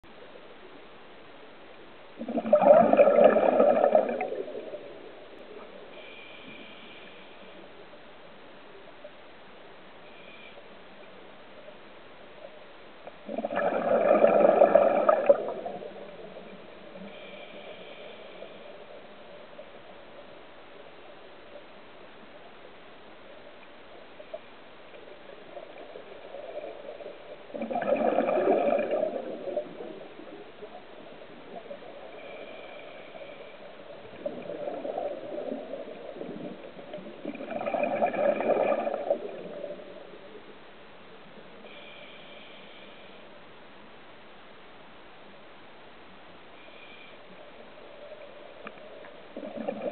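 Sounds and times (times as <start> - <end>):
faint water hiss: 0.0 - 49.9
exhaled breath bubbling underwater: 2.2 - 5.0, 13.2 - 16.2, 26.2 - 30.3, 31.4 - 39.9, 49.3 - 49.9.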